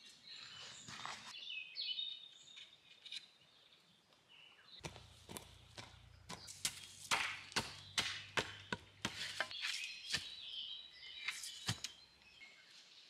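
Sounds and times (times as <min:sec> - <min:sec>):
birds singing: 0:00.0 - 0:13.0
hand tool chopping wood: 0:04.8 - 0:10.4, 0:11.3 - 0:12.0.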